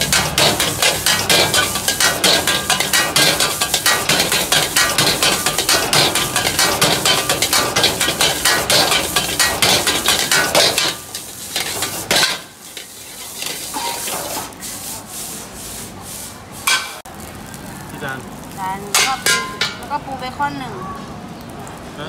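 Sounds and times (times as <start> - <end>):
metal ladle clattering on wok: 0.0 - 14.5, 16.6 - 17.0, 18.9 - 19.9
food sizzling: 0.0 - 22.0.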